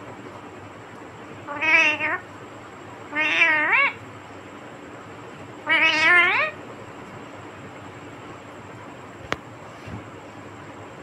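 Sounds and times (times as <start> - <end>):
parakeet meow-like calls: 1.4 - 2.3, 3.1 - 4.0, 5.6 - 6.6.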